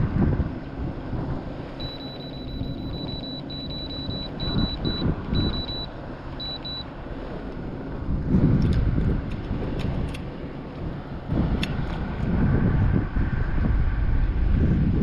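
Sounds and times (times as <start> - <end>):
high-pitched electronic beeps: 1.8 - 6.9.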